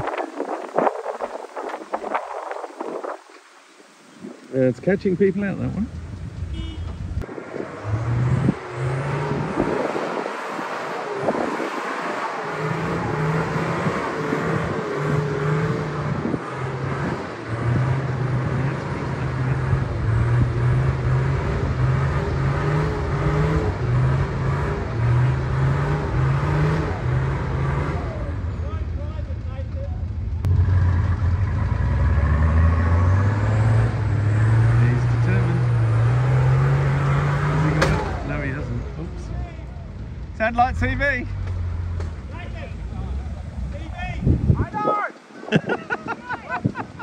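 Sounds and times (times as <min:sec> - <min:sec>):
vehicle engine revving: 0:05.6 - 0:44.6.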